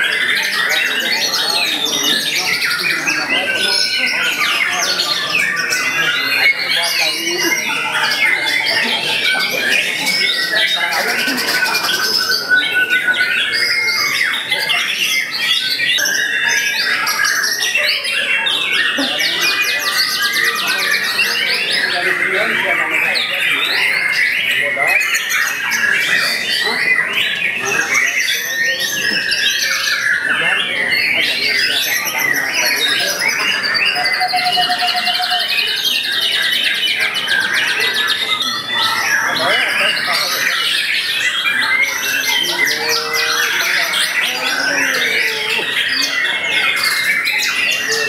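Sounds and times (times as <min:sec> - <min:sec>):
other songbirds singing: 0:00.0 - 0:48.0
fast bird trill: 0:23.2 - 0:48.0.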